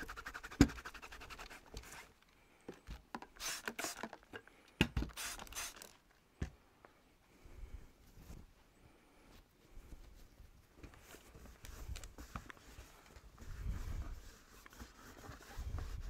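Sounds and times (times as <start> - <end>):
fine rapid scratches: 0.0 - 1.6
scratchy scrubbing: 12.2 - 16.0.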